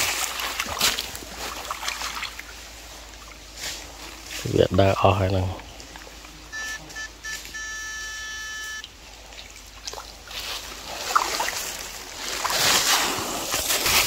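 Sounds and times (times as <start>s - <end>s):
wading splashes in water: 0.0s - 14.0s
electronic beeps: 6.5s - 8.9s.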